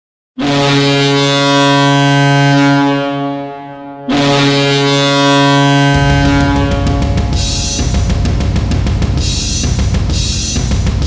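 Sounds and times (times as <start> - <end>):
hockey goal horn blasts: 0.4 - 8.4.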